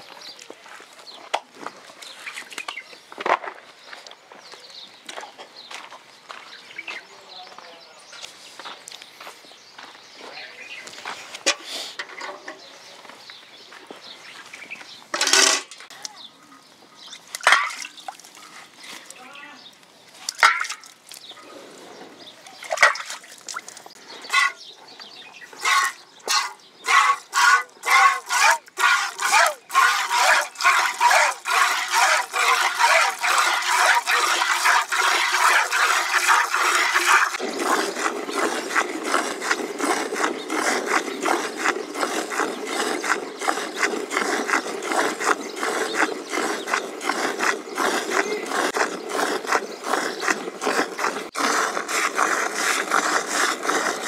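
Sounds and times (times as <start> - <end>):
milk squirting into steel pail: 25.6 - 54.0.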